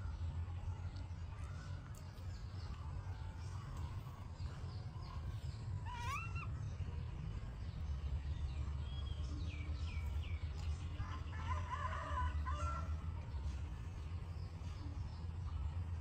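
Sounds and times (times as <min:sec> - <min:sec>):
steady low rumble: 0:00.0 - 0:16.0
high animal chirps: 0:05.8 - 0:06.6.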